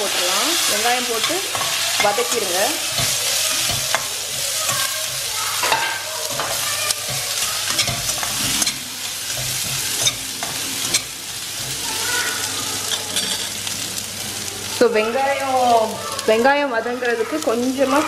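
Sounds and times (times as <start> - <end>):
onions sizzling in oil: 0.0 - 18.0
metal spatula scraping pan: 0.1 - 11.9.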